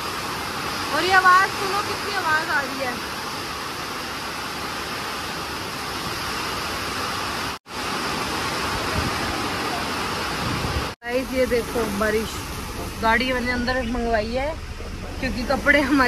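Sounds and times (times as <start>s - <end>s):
heavy rain pouring: 0.0s - 16.0s
low thumps: 12.3s - 16.0s.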